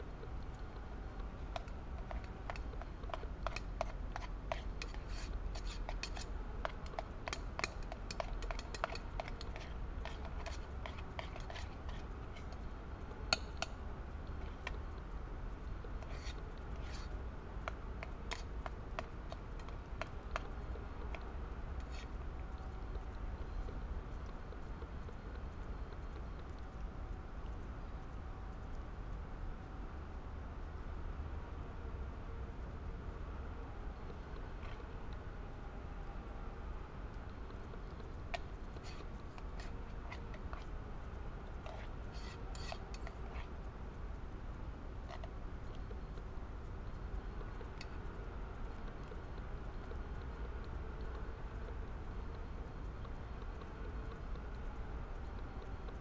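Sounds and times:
spoon scraping pot: 0:01.6 - 0:12.5.

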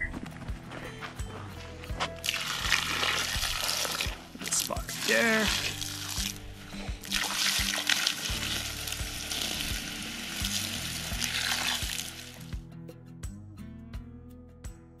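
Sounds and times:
water pouring from bucket: 0:02.2 - 0:06.4, 0:07.0 - 0:12.5
hot coals hissing and sizzling: 0:02.2 - 0:12.5.

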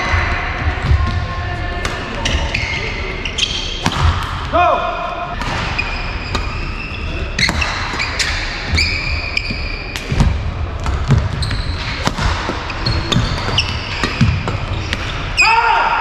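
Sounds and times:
rackets hitting shuttlecock: 0:01.8 - 0:02.6, 0:03.4 - 0:04.5, 0:05.3 - 0:06.7, 0:07.4 - 0:15.3
shoes squeaking on floor: 0:02.2 - 0:03.9, 0:05.6 - 0:10.3, 0:11.1 - 0:15.5.

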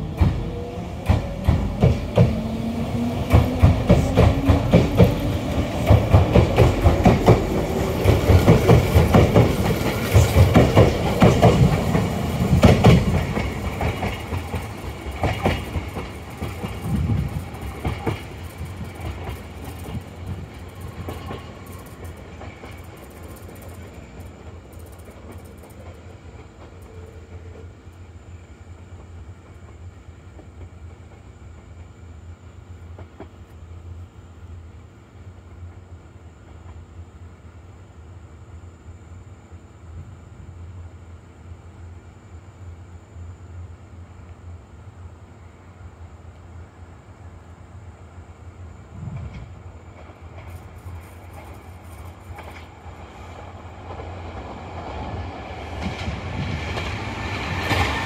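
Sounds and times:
train wheels clacking: 0:00.0 - 0:27.7, 0:49.1 - 0:58.0
electric train motor hum: 0:00.0 - 0:28.1
faint train rumble: 0:00.0 - 0:58.0.

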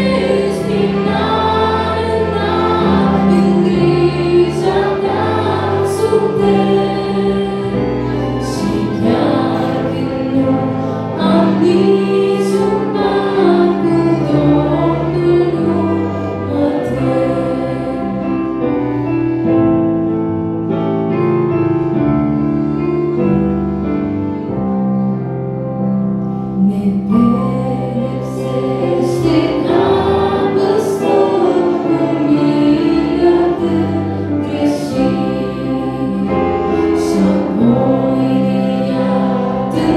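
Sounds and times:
woman singing a hymn: 0:00.0 - 0:18.6, 0:26.6 - 0:39.9
instrumental accompaniment: 0:00.0 - 0:39.9.

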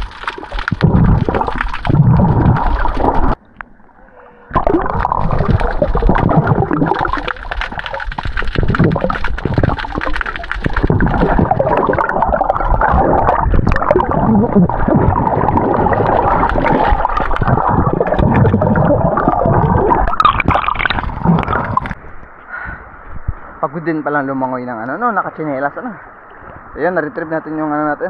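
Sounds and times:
gurgling bubbles: 0:00.0 - 0:03.4, 0:04.5 - 0:22.0
underwater churning water: 0:00.0 - 0:22.0.

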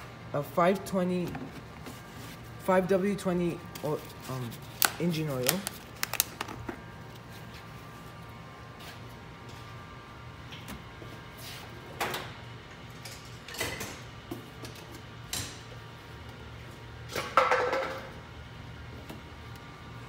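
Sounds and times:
steady low hum: 0:00.0 - 0:20.0
objects knocking and clattering: 0:17.2 - 0:18.1.

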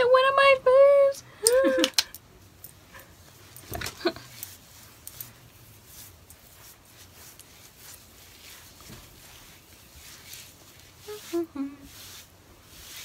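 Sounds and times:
fingers rustling through hair: 0:01.7 - 0:13.0.

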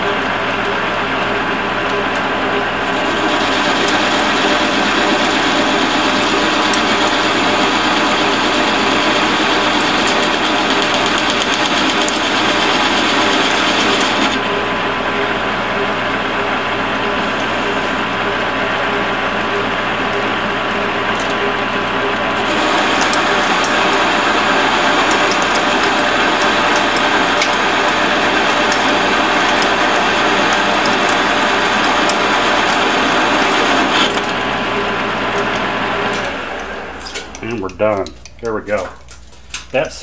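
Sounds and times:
metal lathe cutting steel: 0:02.0 - 0:18.7, 0:20.1 - 0:37.8
metal chips ticking: 0:22.5 - 0:34.3.

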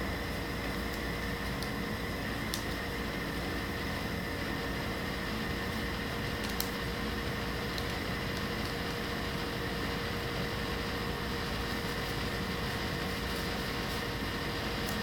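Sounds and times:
appliance hum: 0:00.0 - 0:15.0
faint constant whine: 0:00.0 - 0:15.0
paper and scissors clicks: 0:02.4 - 0:02.8, 0:06.3 - 0:06.8, 0:07.7 - 0:08.8, 0:14.8 - 0:15.0.

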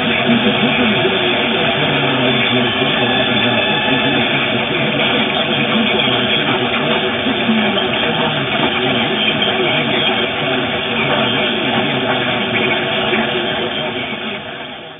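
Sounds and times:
radio static hiss: 0:00.0 - 0:14.9.

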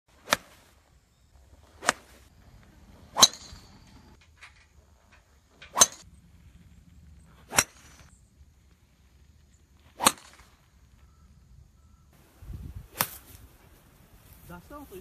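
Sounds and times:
golf clubs striking balls: 0:01.6 - 0:06.2, 0:07.2 - 0:08.1, 0:09.9 - 0:10.7.

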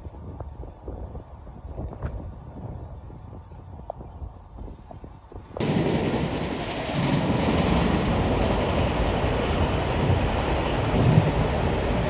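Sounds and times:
train wheels rumbling on rail: 0:05.3 - 0:12.0
rail joint clicks: 0:06.6 - 0:12.0.

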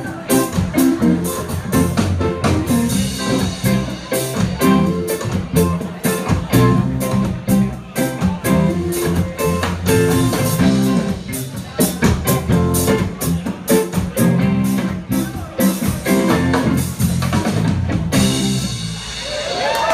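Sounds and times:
drum kit: 0:00.0 - 0:19.9
reggae band playing: 0:00.0 - 0:19.9.

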